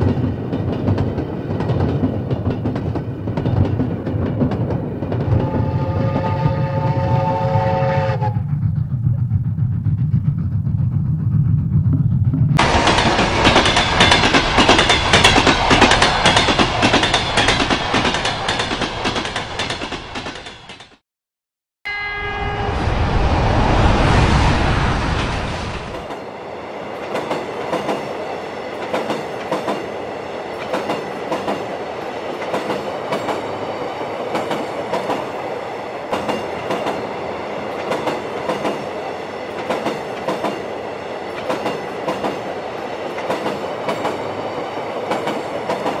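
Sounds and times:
wheels clacking over rail joints: 0.0s - 5.5s, 8.5s - 21.0s, 41.3s - 44.2s
locomotive rumbling by: 0.0s - 20.7s, 22.2s - 46.0s
diesel locomotive horn blast: 5.4s - 8.5s, 21.9s - 23.5s.

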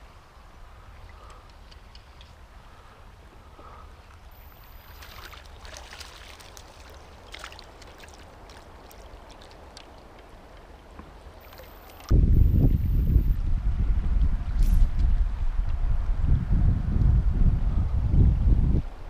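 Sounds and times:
river water running: 0.0s - 13.0s
fish splashing: 4.4s - 10.6s.

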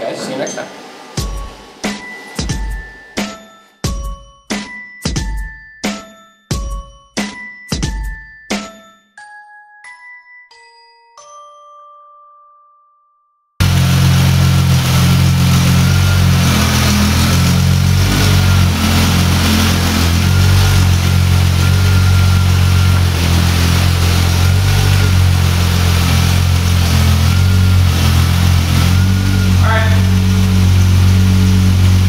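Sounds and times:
car engine idling: 13.6s - 32.0s
faint high whine: 13.6s - 32.0s.

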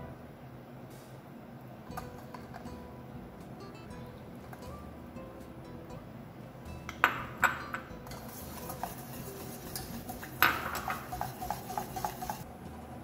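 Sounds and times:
utensils knocking on pan: 6.9s - 12.4s
whisk clicking against saucepan: 8.1s - 12.5s.

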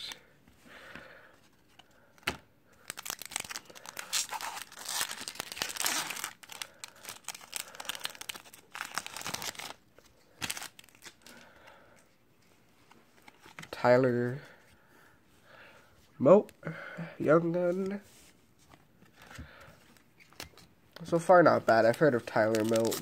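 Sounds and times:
foil wrapper tearing and crinkling: 2.8s - 9.8s, 10.4s - 11.2s, 22.3s - 23.0s.

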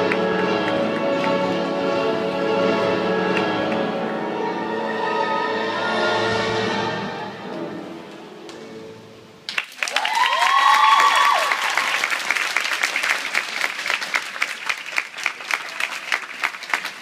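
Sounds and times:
crowd applause and cheering: 0.0s - 2.0s, 9.5s - 17.0s
shrill cheers: 9.8s - 12.1s.

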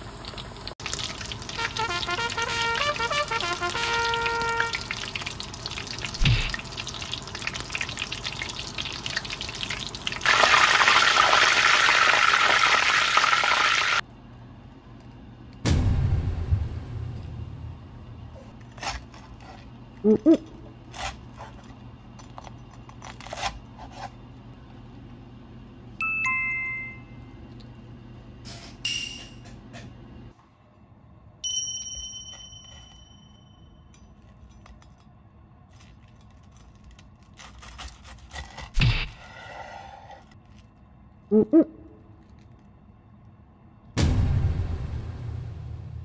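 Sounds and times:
chime-like tones: 26.0s - 27.2s, 31.4s - 33.9s.

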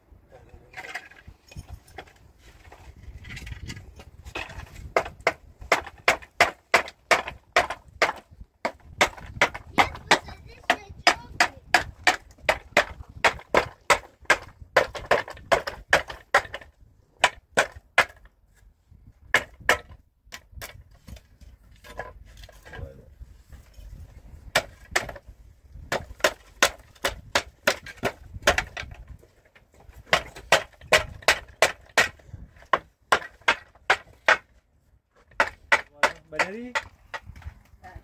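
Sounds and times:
tool striking wood: 4.3s - 18.3s, 19.3s - 21.2s, 24.5s - 25.2s, 25.8s - 29.0s, 30.0s - 34.6s, 35.2s - 37.5s.

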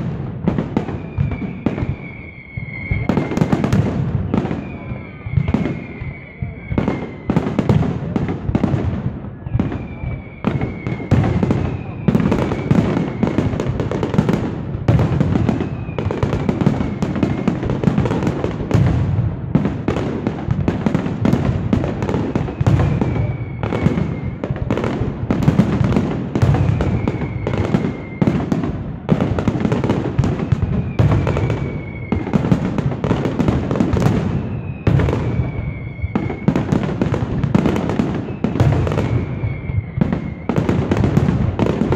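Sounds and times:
fireworks whistles: 0.0s - 41.9s.

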